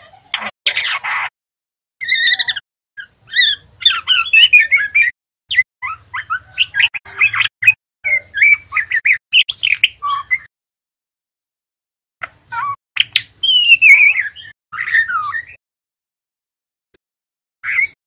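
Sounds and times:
bird twittering chirps and whistles: 2.0 - 10.5, 12.2 - 15.6, 17.6 - 18.0.

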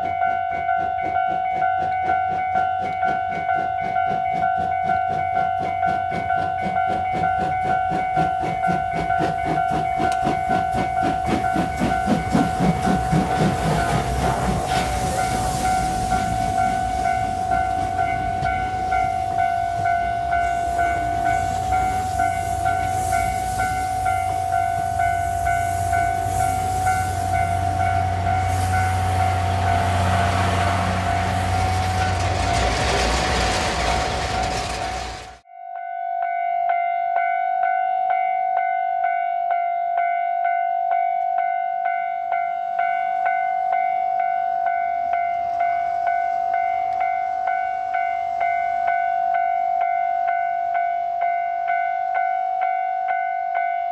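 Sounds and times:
level-crossing alarm ringing: 0.0 - 33.0, 35.6 - 53.9
diesel locomotive engine running: 0.0 - 35.4
steam locomotive exhaust chuffs: 0.0 - 35.4
train coaches rolling on rails: 0.0 - 35.4.

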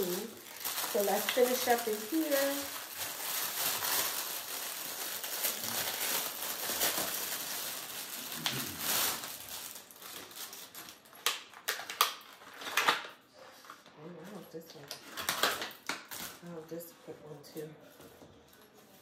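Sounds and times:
plastic bag crinkling: 0.0 - 13.2
plastic crackles: 0.0 - 13.9, 14.6 - 16.5.

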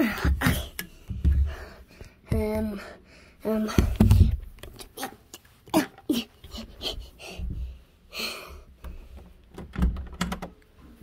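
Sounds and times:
person breathing softly: 0.0 - 4.0, 6.4 - 9.3
handling clicks and knocks: 9.2 - 10.7.

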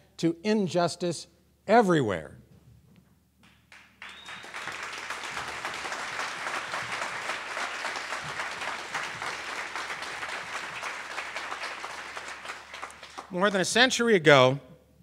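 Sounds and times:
audience applauding: 3.7 - 13.6.

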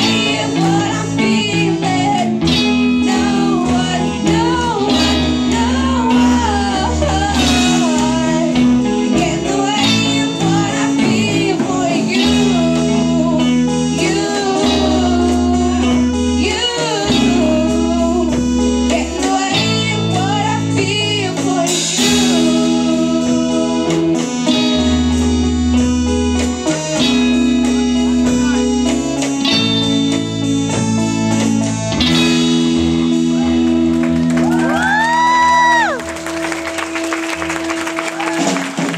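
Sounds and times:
girl singing into microphone: 0.0 - 24.2
live pop band playing: 0.0 - 38.9.

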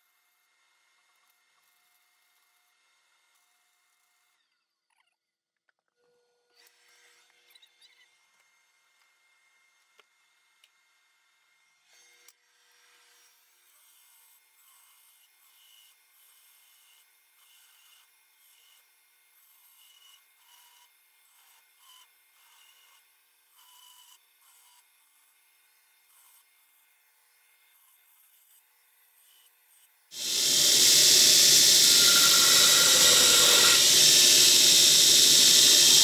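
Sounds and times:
faint belt grinder grinding steel: 28.7 - 36.0.

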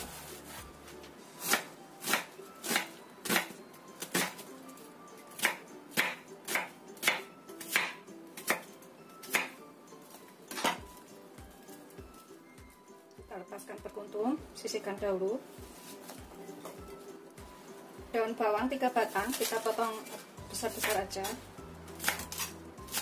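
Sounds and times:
knife chopping on cutting board: 5.4 - 8.7, 9.3 - 9.6, 22.0 - 23.0.

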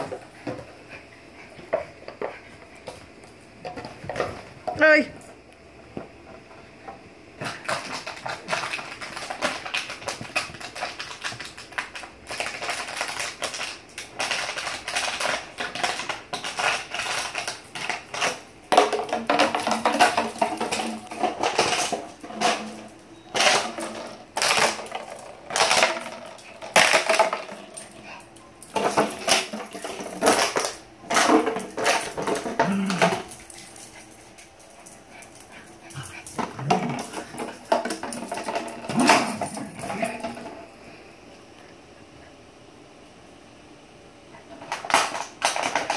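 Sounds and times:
plastic bottle crackling and crunching: 7.4 - 22.7.

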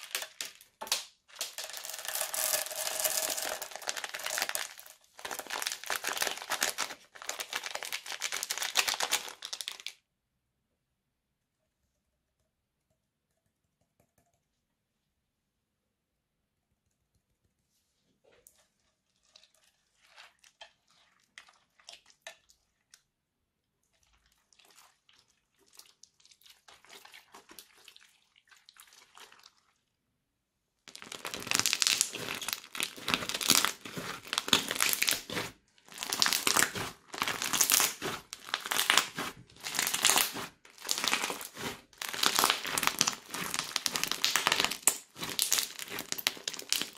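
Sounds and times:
crunchy slime crackling: 0.0 - 9.9, 30.9 - 46.9.

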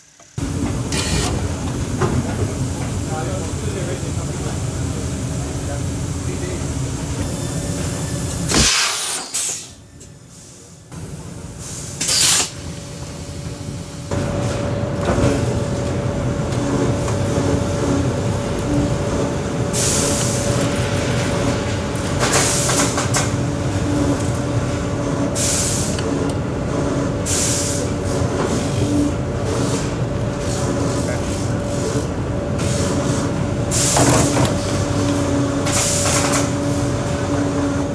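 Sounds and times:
machines humming with faint whine: 0.0 - 37.9
compressed air hisses: 8.5 - 10.7.

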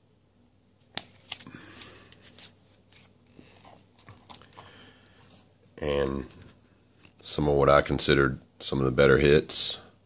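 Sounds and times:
cards clicking and rustling: 0.8 - 4.7.

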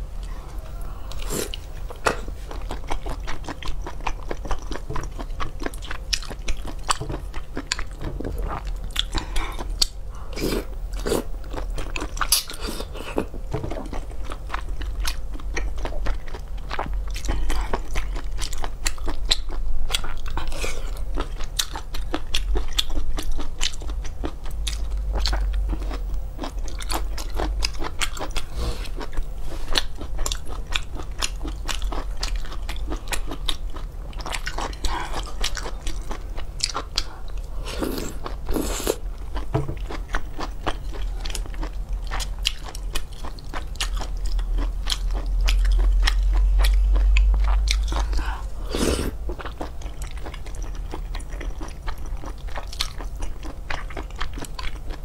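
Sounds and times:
low hum: 0.0 - 5.2, 43.9 - 51.4
person chewing seafood: 0.2 - 55.0.

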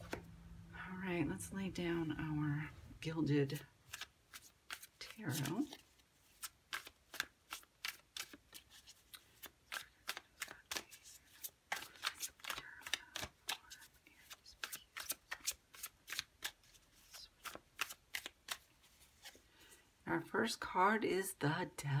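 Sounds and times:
cards being shuffled: 3.8 - 19.6.

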